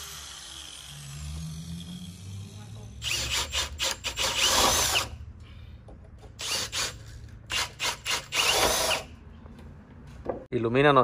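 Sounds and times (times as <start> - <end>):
cordless drill boring into wood: 0.0 - 5.2, 6.4 - 9.1.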